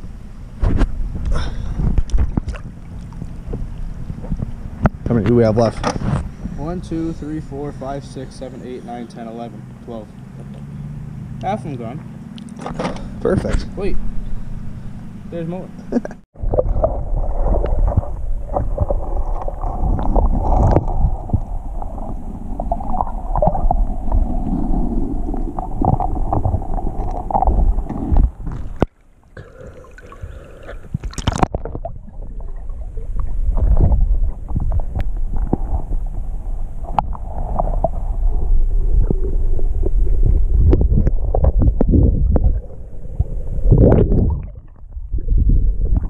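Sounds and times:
muffled underwater water gurgling: 16.4s - 46.0s.

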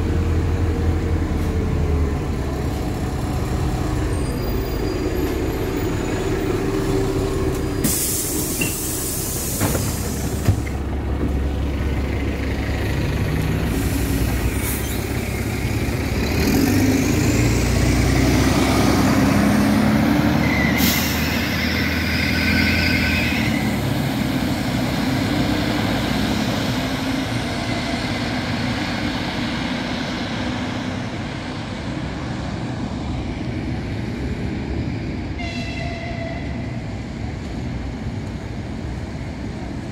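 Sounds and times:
bus engine and running noise: 0.0s - 39.9s
air brake hisses: 7.8s - 10.7s, 13.7s - 15.0s, 20.7s - 21.5s.

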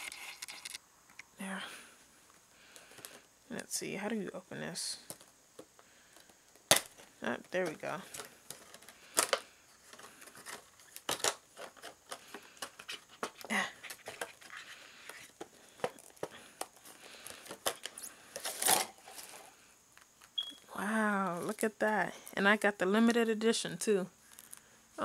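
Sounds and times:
plastic packaging crinkling: 0.0s - 0.8s, 6.1s - 19.5s.

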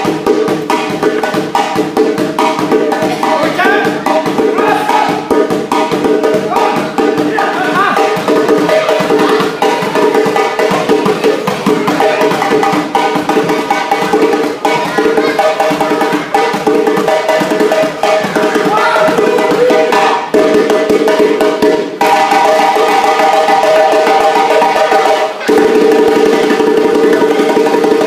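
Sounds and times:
djembe drumming: 0.0s - 28.0s
voices: 3.0s - 5.2s, 6.4s - 12.8s, 18.0s - 20.2s.

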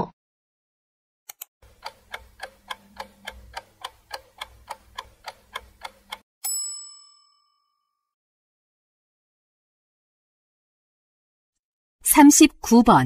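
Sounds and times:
ticking clock: 1.3s - 6.2s.

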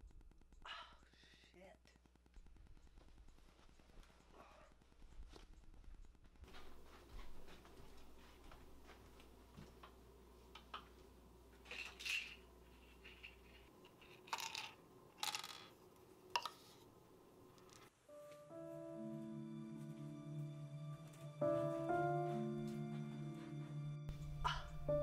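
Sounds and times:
pill bottle rattling: 13.1s - 15.7s
pills clicking onto counter: 14.0s - 15.7s.

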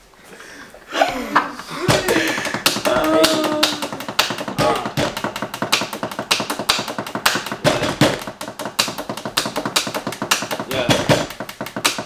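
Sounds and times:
hands drumming on a tabletop: 1.6s - 12.0s.

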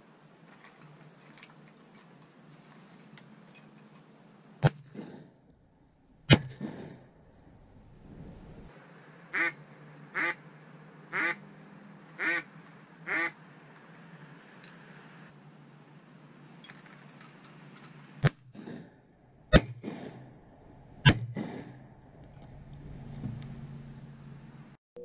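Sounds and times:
loud shotgun shots: 6.3s - 7.0s, 19.5s - 20.3s, 21.0s - 21.8s
duck quacking: 9.3s - 10.4s, 11.1s - 11.4s, 12.2s - 13.4s.

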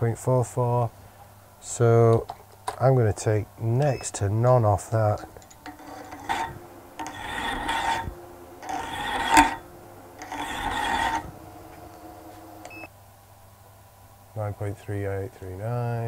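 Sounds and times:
lathe humming: 5.1s - 12.9s
hand file rasping on metal: 5.6s - 11.4s.

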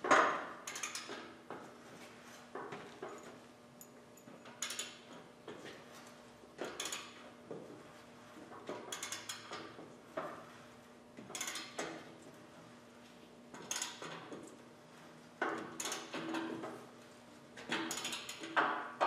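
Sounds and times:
metallic clanks and rattles: 0.0s - 1.4s, 6.6s - 7.2s, 8.5s - 10.5s, 11.2s - 12.2s, 13.6s - 14.5s, 17.6s - 19.0s.

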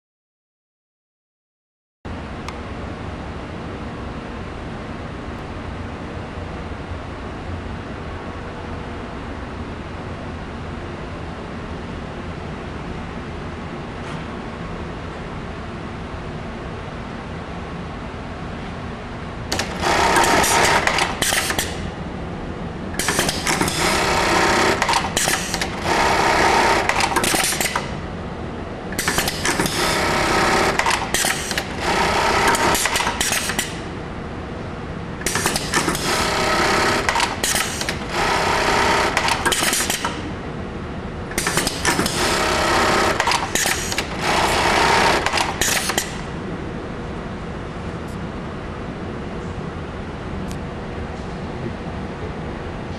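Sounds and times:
sewing machine stitching: 19.5s - 21.8s, 23.0s - 27.9s, 29.0s - 33.8s, 35.2s - 40.2s, 41.4s - 46.2s.

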